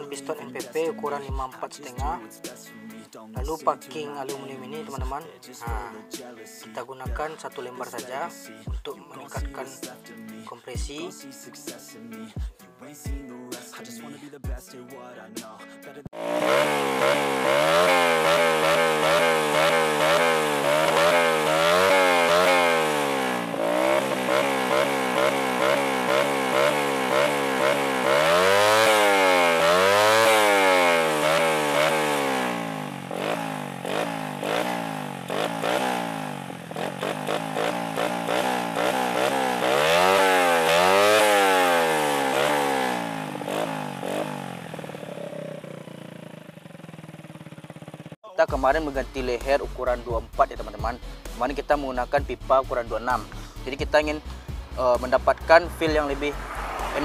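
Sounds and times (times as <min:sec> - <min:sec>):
motorcycle engine revving: 0:16.1 - 0:57.0.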